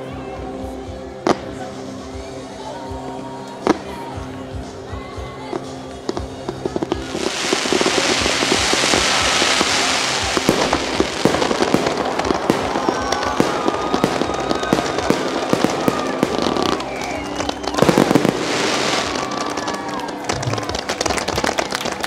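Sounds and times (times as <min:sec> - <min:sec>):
fireworks bangs and crackling: 0:05.5 - 0:22.0
fireworks hiss: 0:05.6 - 0:20.0.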